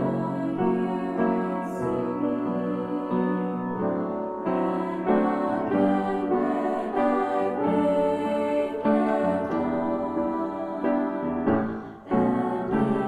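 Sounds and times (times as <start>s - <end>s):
slow piano accompaniment: 0.0s - 13.0s.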